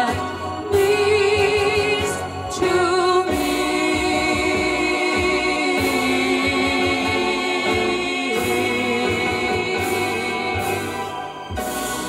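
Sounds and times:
women singing in harmony: 0:00.0 - 0:11.5
instrumental backing: 0:00.0 - 0:12.0.

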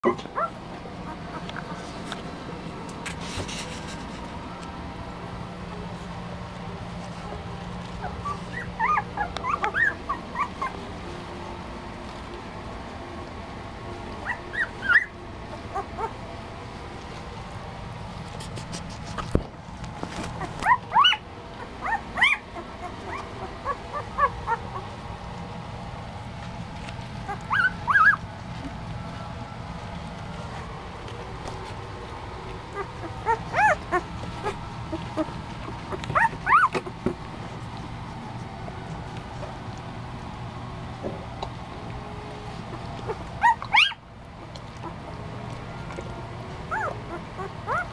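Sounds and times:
puppies squealing and whimpering: 0:00.1 - 0:02.0, 0:07.8 - 0:10.9, 0:14.2 - 0:16.2, 0:20.2 - 0:25.1, 0:27.1 - 0:28.4, 0:32.2 - 0:37.0, 0:42.5 - 0:45.2, 0:45.8 - 0:47.9.

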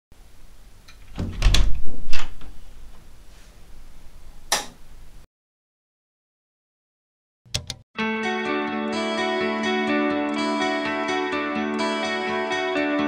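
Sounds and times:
sharp click: 0:07.5 - 0:07.8.

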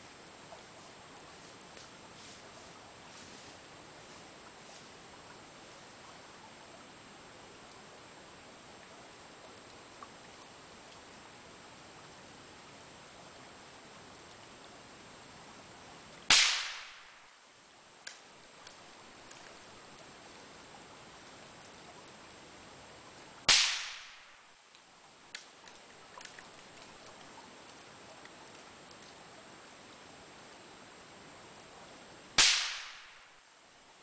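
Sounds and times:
suppressed rifle shots: 0:16.3 - 0:17.2, 0:23.5 - 0:24.4, 0:32.4 - 0:33.3
faint clicks: 0:18.0 - 0:20.1, 0:24.7 - 0:29.2.

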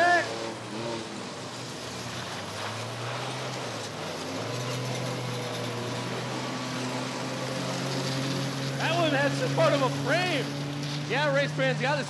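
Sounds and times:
car engines droning: 0:00.0 - 0:12.0
track noise: 0:00.0 - 0:12.0.

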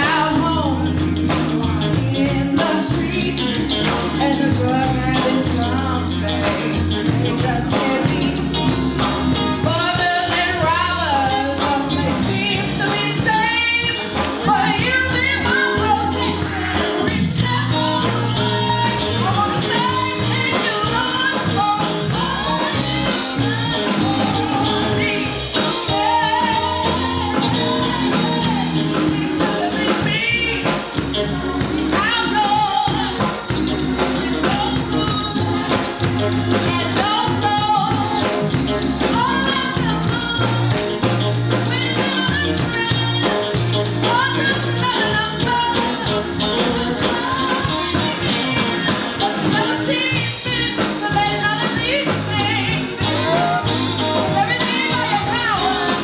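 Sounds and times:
drum kit: 0:00.0 - 0:56.0
electric bass: 0:00.0 - 0:56.0
electric guitar: 0:00.0 - 0:56.0
woman singing gospel: 0:00.0 - 0:56.0.

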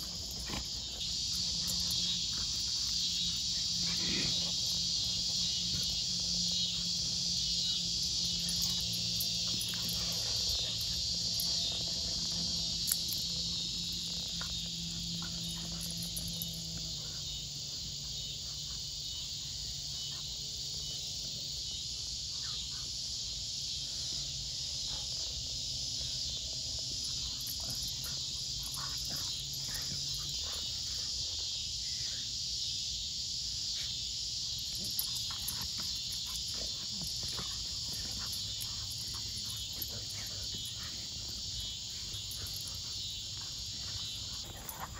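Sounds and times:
dogs huffing and scuffling: 0:00.0 - 0:21.1, 0:24.7 - 0:31.6, 0:34.5 - 0:44.9
faint low hum: 0:00.0 - 0:22.8
insects buzzing: 0:00.0 - 0:44.9.

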